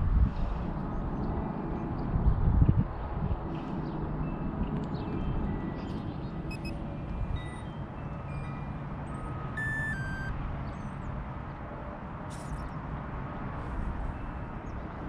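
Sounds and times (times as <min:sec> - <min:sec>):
wind buffeting microphone: 0:00.0 - 0:07.6
short electronic beeps: 0:06.5 - 0:06.8, 0:09.2 - 0:10.9.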